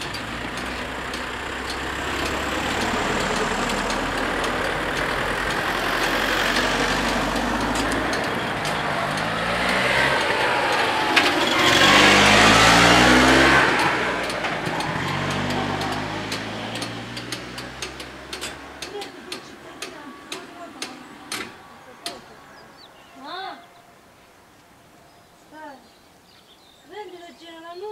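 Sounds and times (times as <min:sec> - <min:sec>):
sharp clicks: 0:00.0 - 0:12.6, 0:13.6 - 0:22.3
cars accelerating past: 0:00.0 - 0:22.9.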